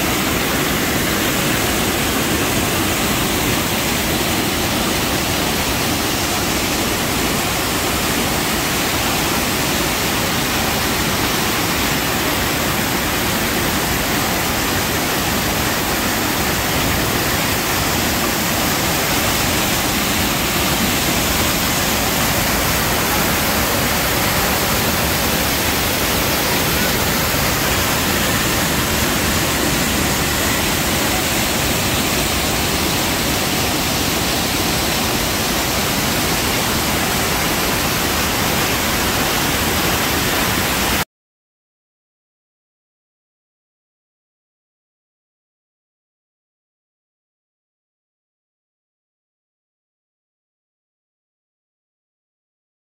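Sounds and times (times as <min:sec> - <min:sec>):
waterfall rushing into pool: 0:00.0 - 0:41.0.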